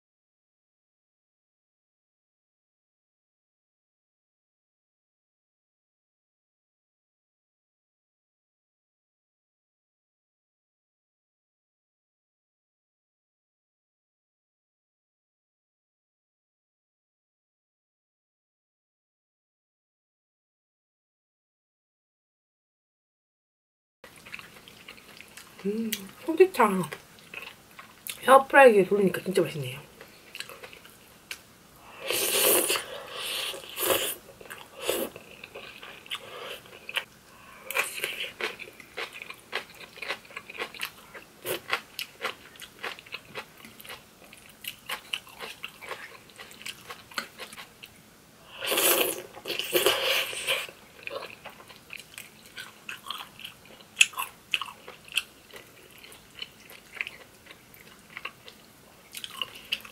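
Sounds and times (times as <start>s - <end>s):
person chewing crispy food: 24.1s - 26.1s, 26.9s - 28.2s, 30.0s - 48.0s, 48.6s - 59.9s.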